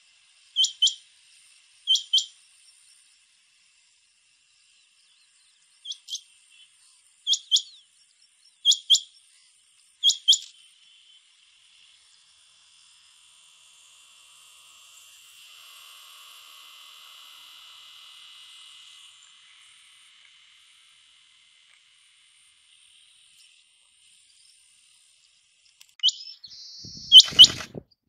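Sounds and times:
high insect hum: 0.0s - 21.4s
quail whistled calls: 0.6s - 1.0s, 1.9s - 2.3s, 5.9s - 6.2s, 7.3s - 7.8s, 8.6s - 9.1s, 10.0s - 10.5s, 26.0s - 27.8s.

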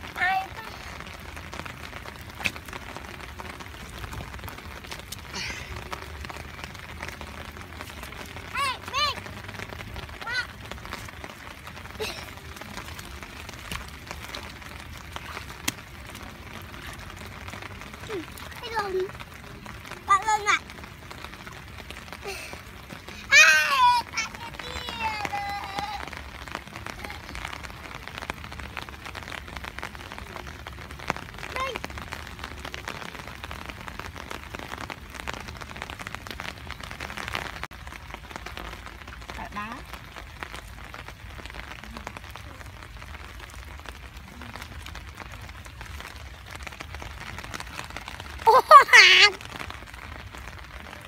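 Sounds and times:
rain falling on wet ground: 0.0s - 51.0s.

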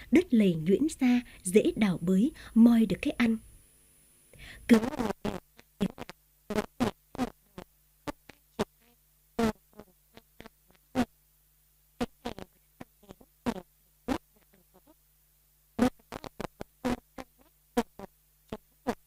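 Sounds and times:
chopped stuttering narrator voice: 0.0s - 3.4s
faint low hum: 0.0s - 19.0s.

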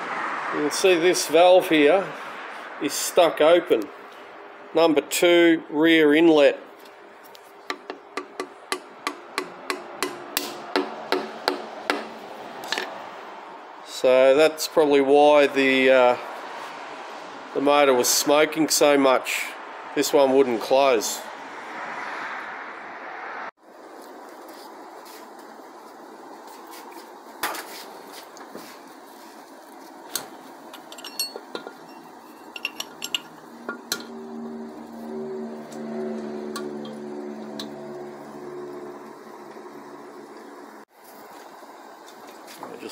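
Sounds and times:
metal parts clinking: 30.8s - 34.0s.

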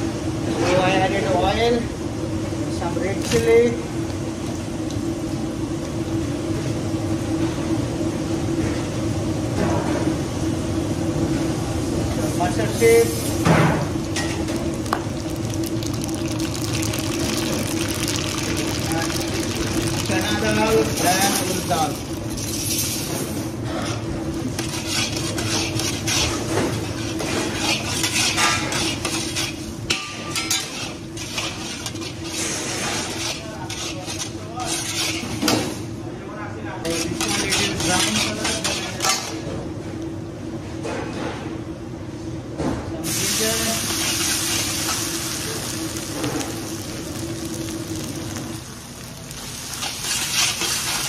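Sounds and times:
gas burner flame rumbling: 0.0s - 51.0s
chilies frying in oil: 12.3s - 35.8s, 36.9s - 39.4s, 43.0s - 51.0s
metal spatula scraping iron pan: 24.6s - 35.4s, 36.8s - 39.3s.

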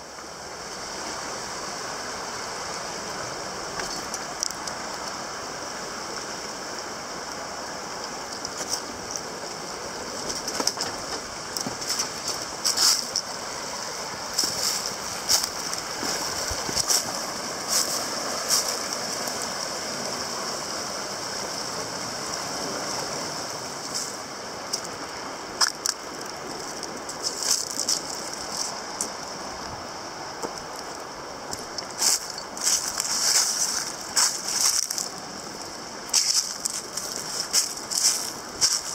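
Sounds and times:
creek rushing over rock: 0.0s - 38.9s
footsteps crunching dry leaves: 11.6s - 13.2s, 13.9s - 19.6s, 32.0s - 35.4s, 36.1s - 38.9s.

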